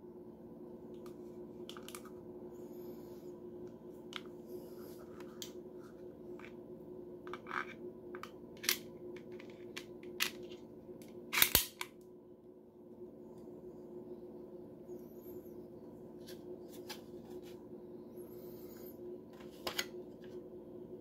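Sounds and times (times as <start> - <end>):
pistol metal clicks: 11.3 - 12.0.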